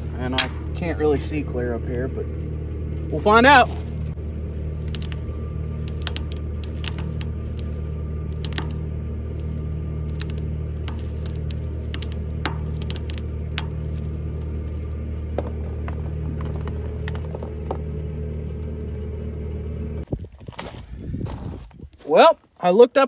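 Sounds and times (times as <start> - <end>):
diesel engine running: 0.0 - 21.6
winch cable clicking and creaking: 3.0 - 15.0.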